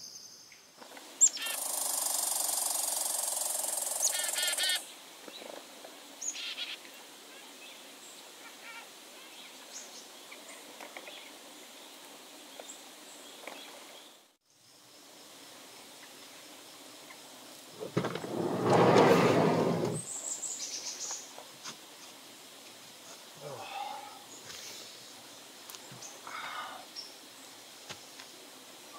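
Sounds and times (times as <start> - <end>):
faint outdoor background: 0.0 - 28.9
loud steady hiss: 0.0 - 28.9
songbirds chirping: 0.0 - 28.9.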